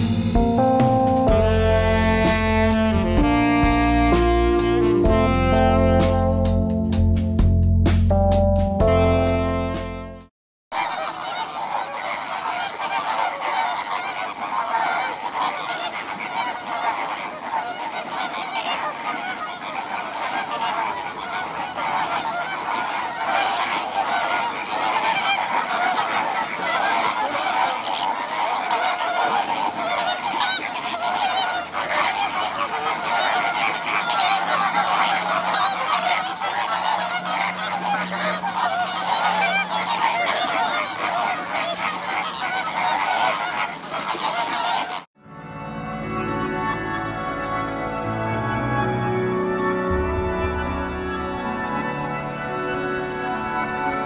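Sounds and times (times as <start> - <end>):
flamingo flock calling: 10.8 - 45.1.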